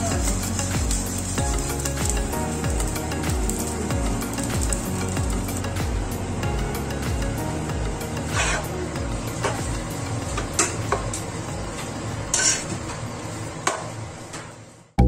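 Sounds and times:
light sizzle: 0.0s - 14.9s
metal tongs scraping pan: 8.2s - 8.7s, 12.3s - 12.8s.

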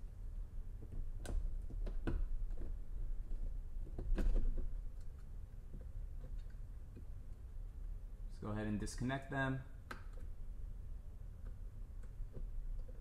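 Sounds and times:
hard plastic clicks and snaps: 9.8s - 10.3s.

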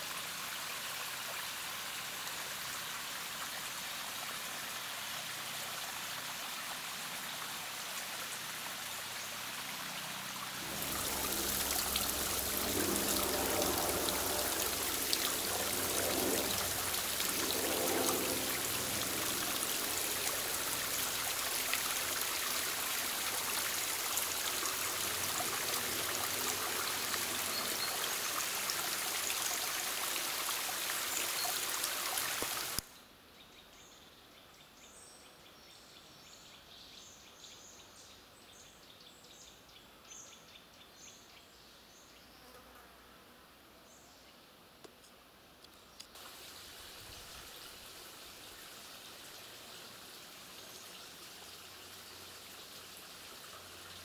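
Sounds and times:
water trickling over stones: 0.0s - 32.9s, 46.0s - 54.0s.

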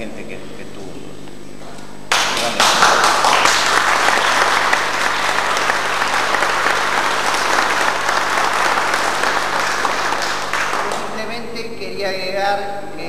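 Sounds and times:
audience clapping: 2.1s - 11.5s.

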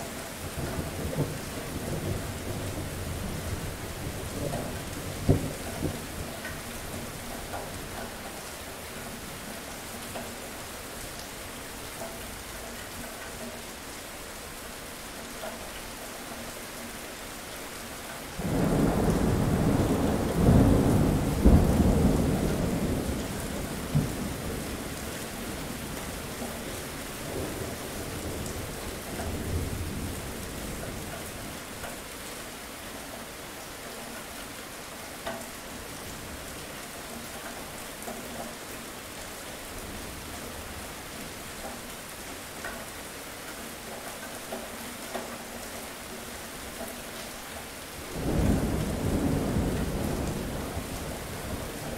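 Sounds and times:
steady rain: 0.0s - 51.9s
thunder rumbling: 18.4s - 26.0s, 48.1s - 51.9s.

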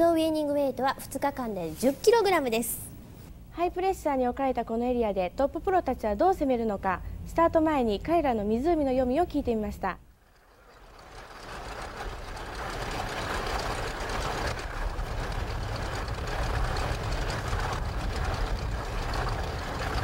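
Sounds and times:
outboard motors running: 10.2s - 20.0s.

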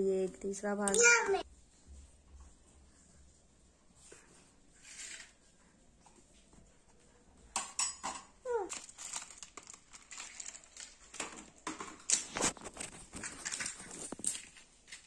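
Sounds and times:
clicks and clinks of small items: 7.6s - 15.0s.

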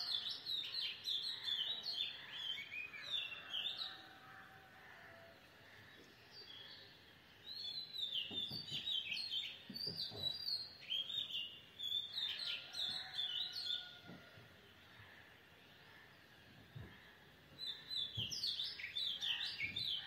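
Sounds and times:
birds chirping: 5.1s - 20.0s.

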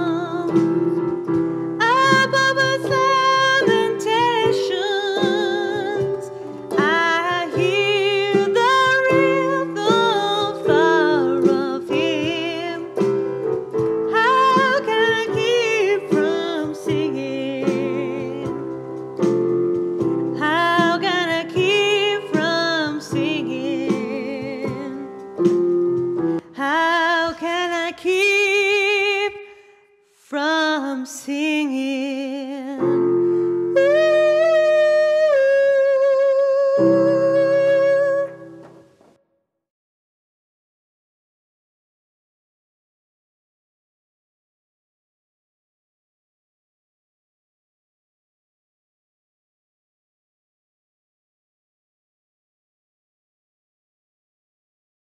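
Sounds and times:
person singing with vibrato: 1.8s - 13.4s, 14.1s - 18.8s, 20.4s - 25.1s, 30.3s - 38.6s.

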